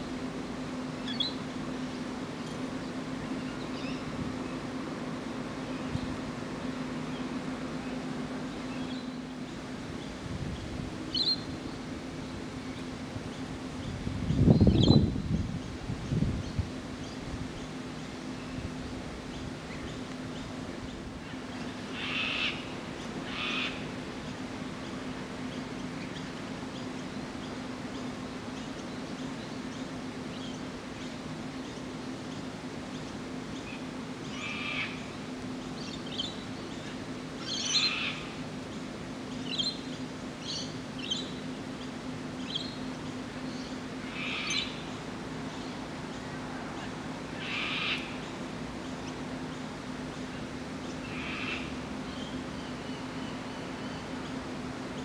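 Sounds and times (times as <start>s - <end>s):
steady low hum: 0.0s - 55.0s
young magpie begging calls: 21.9s - 23.9s, 34.3s - 35.0s, 44.0s - 44.8s, 47.4s - 48.3s, 51.0s - 51.8s.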